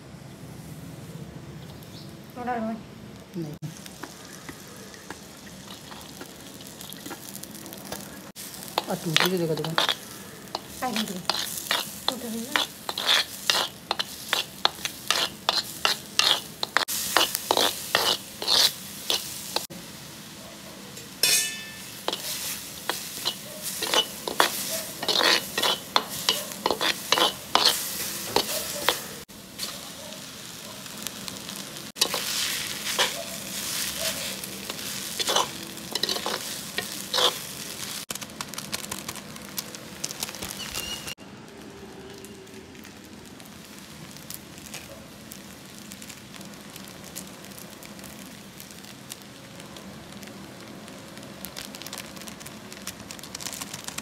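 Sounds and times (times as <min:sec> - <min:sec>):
vegetables sizzling in a pan: 0:01.6 - 0:54.0
metal spatula scraping a pan: 0:08.7 - 0:19.7, 0:21.2 - 0:29.7, 0:32.0 - 0:37.6.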